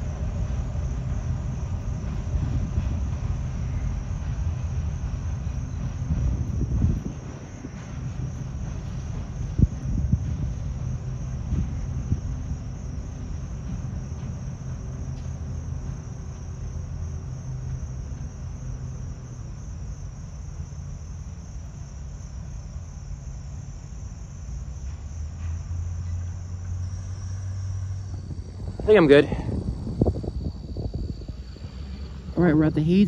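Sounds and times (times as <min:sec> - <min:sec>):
crickets chirping: 0:00.0 - 0:33.0
diesel locomotive engine droning: 0:00.0 - 0:33.0
car driving past: 0:25.4 - 0:33.0.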